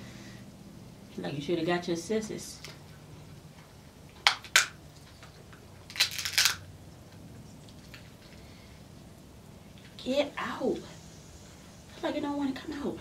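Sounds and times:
crab shell cracking: 5.5 - 6.7.

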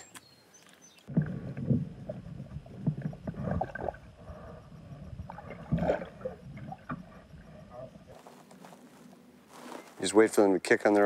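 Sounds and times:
underwater sloshing and gurgling: 1.0 - 8.2
low knocks and thumps: 1.1 - 4.0.

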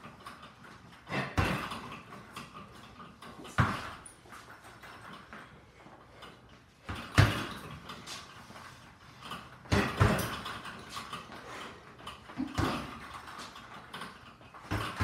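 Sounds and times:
gloves punching heavy bag: 1.1 - 2.2, 3.5 - 4.1, 6.8 - 7.9, 9.6 - 11.0, 12.4 - 13.5, 14.6 - 15.0.

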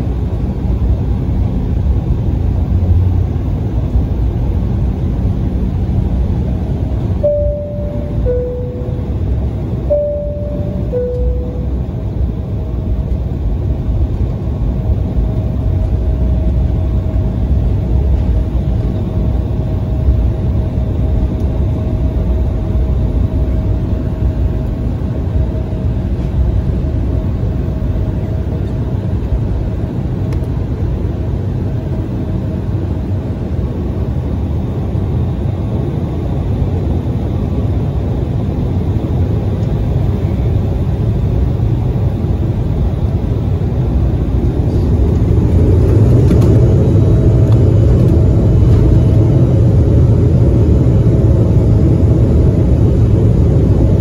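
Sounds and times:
jet engines low rumble: 0.0 - 54.0
thin steady whine: 5.7 - 28.8.

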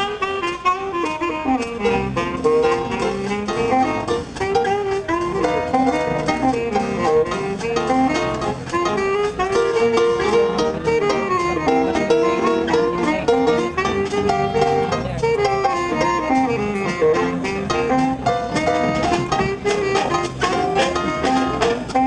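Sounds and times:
orchestra playing brisk piece: 0.0 - 22.0.

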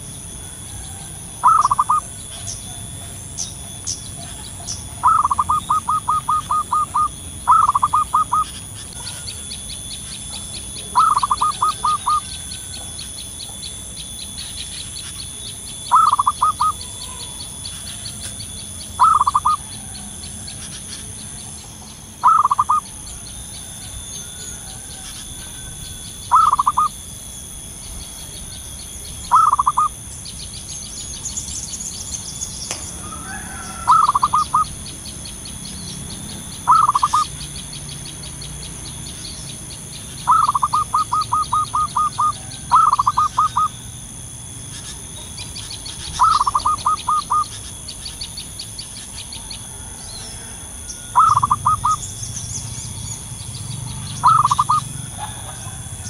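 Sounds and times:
dove cooing: 0.0 - 13.8, 14.4 - 26.9, 29.3 - 30.0, 32.7 - 34.9, 36.1 - 37.5, 40.1 - 43.9, 44.6 - 47.7, 49.2 - 52.2, 53.8 - 56.0
high-pitched pulsing: 3.4 - 31.7, 33.8 - 47.9, 50.8 - 55.1.

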